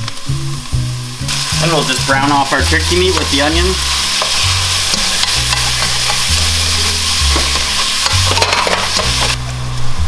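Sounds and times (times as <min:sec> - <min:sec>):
meat and onions sizzling in a pan: 0:00.0 - 0:10.0
spatula scraping a pan: 0:02.8 - 0:09.4.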